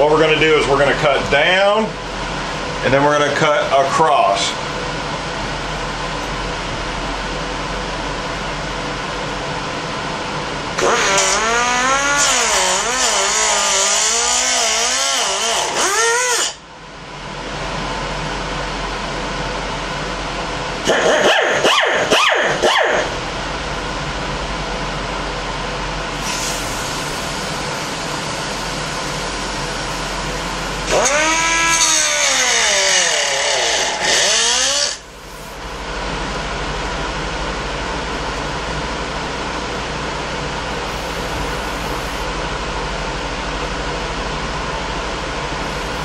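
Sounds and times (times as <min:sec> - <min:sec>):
die grinder cutting plastic: 0:10.8 - 0:16.6, 0:30.9 - 0:35.0.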